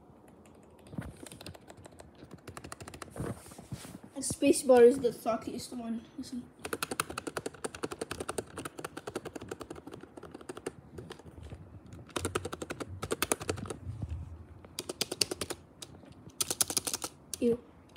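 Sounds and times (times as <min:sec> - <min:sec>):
keyboard keys clacking: 0:00.2 - 0:03.1, 0:06.6 - 0:13.8, 0:14.7 - 0:17.4.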